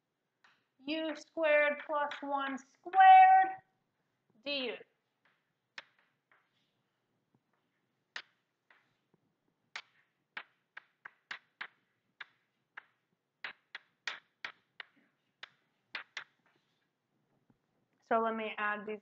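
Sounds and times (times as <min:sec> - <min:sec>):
chalk tapping and scratching: 0:05.2 - 0:16.9.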